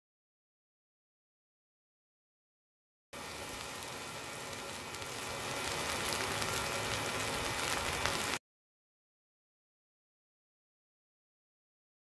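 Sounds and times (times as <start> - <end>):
eggs sizzling on hot metal: 3.2 - 8.4.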